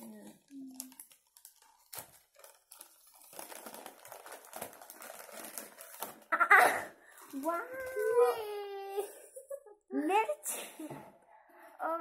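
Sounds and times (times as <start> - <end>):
paper crinkling and rustling: 0.0 - 8.8.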